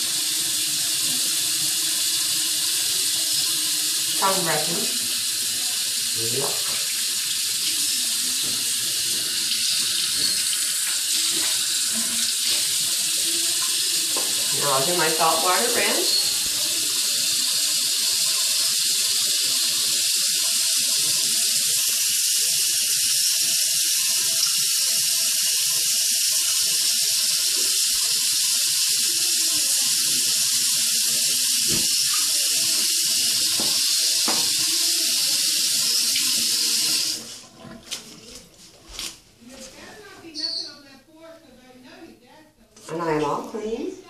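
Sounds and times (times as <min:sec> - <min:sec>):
tap running into sink: 0:06.3 - 0:16.7, 0:31.6 - 0:38.1.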